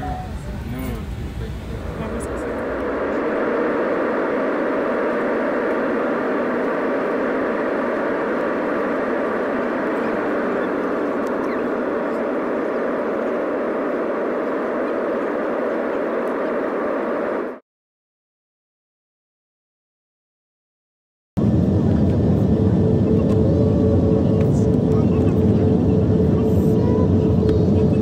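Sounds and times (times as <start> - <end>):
engine and airflow rushing: 0.3 - 17.6, 21.4 - 28.0.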